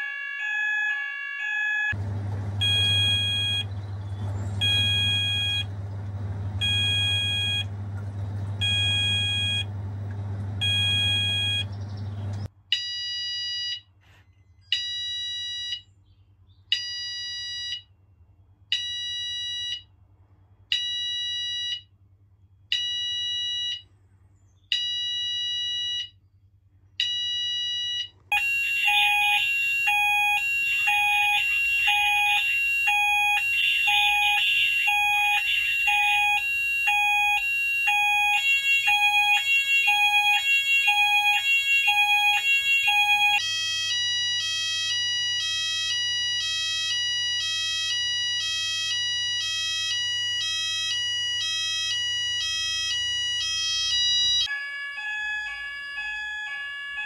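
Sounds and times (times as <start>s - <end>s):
fast-warbling fire alarm: 0.0s - 13.8s, 27.0s - 57.0s
low hum: 2.0s - 12.5s
slower pulsed low alarm tone: 2.4s - 12.4s, 27.6s - 54.5s
fire alarm short beeps: 2.6s - 5.7s, 6.6s - 7.7s, 8.5s - 9.7s, 10.6s - 11.8s, 27.0s - 54.5s.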